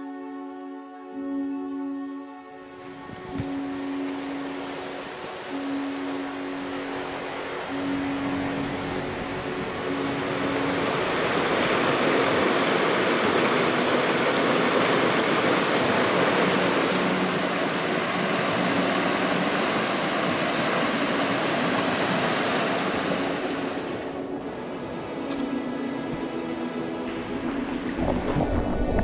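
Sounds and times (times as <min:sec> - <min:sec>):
river rushing over stones: 0:02.8 - 0:24.2, 0:27.4 - 0:29.0.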